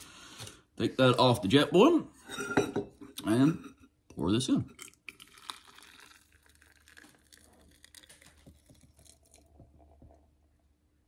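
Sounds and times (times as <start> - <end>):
hot water trickling into a mug: 4.7 - 10.2.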